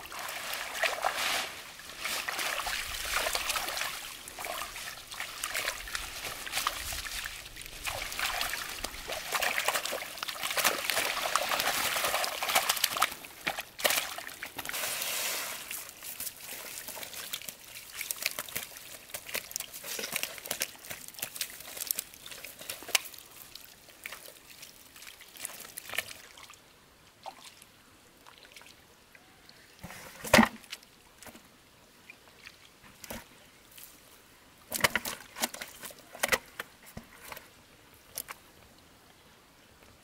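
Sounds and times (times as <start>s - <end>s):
water sloshing and dripping: 0.0s - 14.9s, 15.7s - 26.6s.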